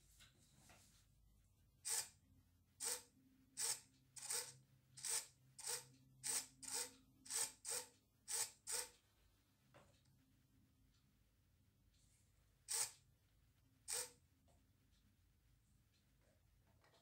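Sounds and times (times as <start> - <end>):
toy car motor whirring: 1.9 - 2.2, 2.8 - 9.0, 12.7 - 13.0, 13.9 - 14.2.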